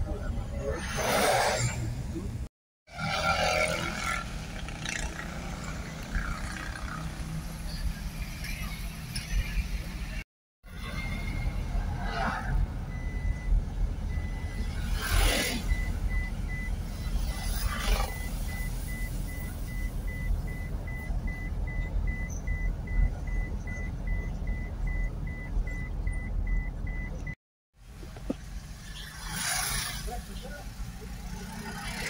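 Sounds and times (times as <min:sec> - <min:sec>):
car engine and road rumble: 0:00.0 - 0:32.0
high electronic beep: 0:10.7 - 0:27.4.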